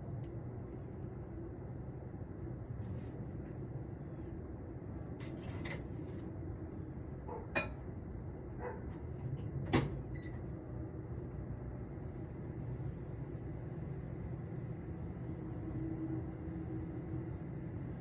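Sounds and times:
low traffic hum: 0:00.0 - 0:18.0
dog barking: 0:07.3 - 0:07.7, 0:08.6 - 0:09.0.

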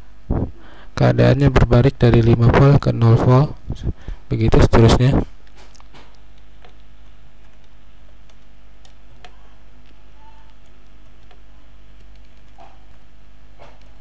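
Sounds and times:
steady low hum: 0:00.0 - 0:14.0
computer keyboard typing: 0:06.4 - 0:13.0.

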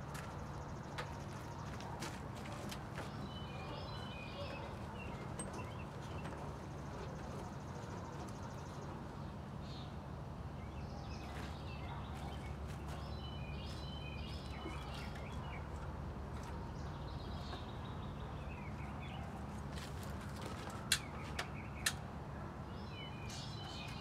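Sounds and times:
birds chirping: 0:02.5 - 0:19.7, 0:20.3 - 0:24.0.

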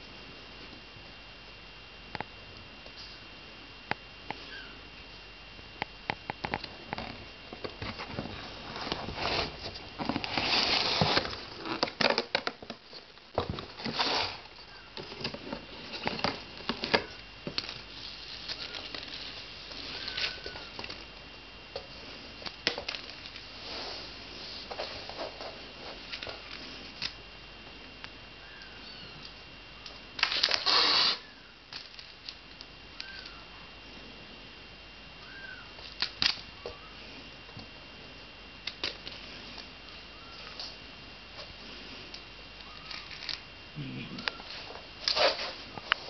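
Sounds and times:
cardboard and plastic crinkling: 0:07.0 - 0:21.1, 0:44.4 - 0:46.0.

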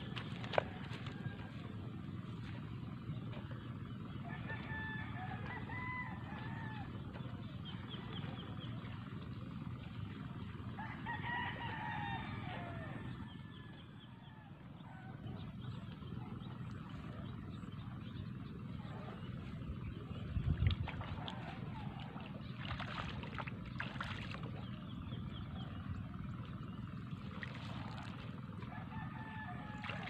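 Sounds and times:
rooster crowing: 0:04.2 - 0:06.9, 0:10.8 - 0:13.1, 0:28.7 - 0:30.0.

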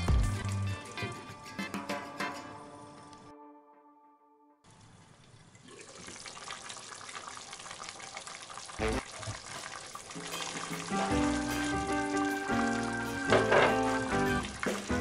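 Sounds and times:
background music: 0:00.0 - 0:04.6, 0:10.1 - 0:15.0
stew bubbling in a pot: 0:05.1 - 0:15.0.

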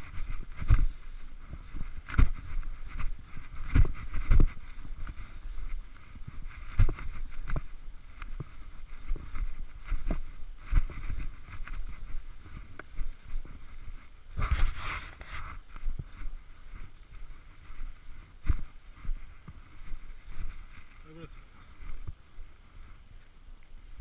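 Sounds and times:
clothing rustling: 0:00.0 - 0:23.1
footsteps crunching through snow: 0:00.0 - 0:23.4
crunching scrape: 0:09.2 - 0:15.8.

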